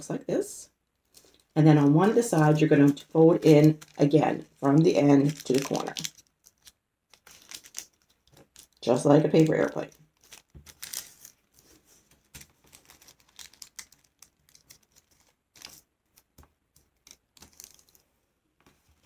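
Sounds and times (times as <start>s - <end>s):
tissue paper rustling and crinkling: 1.0s - 15.9s.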